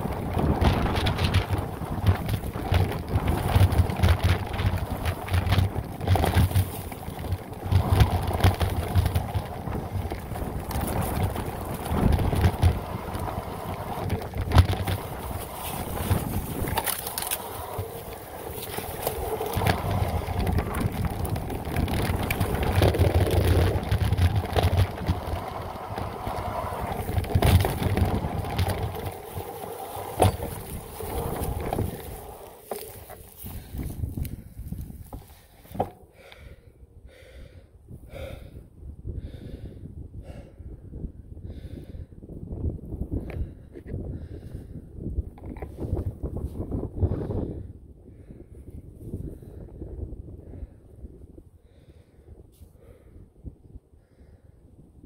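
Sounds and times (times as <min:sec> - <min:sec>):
tyres crunching over dirt and grass: 0:00.0 - 0:36.1
bike rattling and knocking: 0:00.0 - 0:36.5, 0:45.2 - 0:47.6
wind buffeting microphone: 0:00.0 - 0:55.0.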